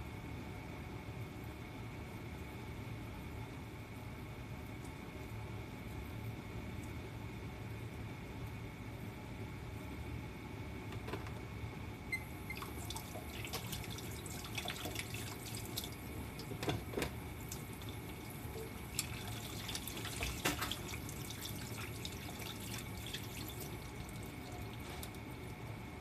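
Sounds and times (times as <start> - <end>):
water running from tap: 12.2 - 25.4
water splashes: 17.4 - 25.1.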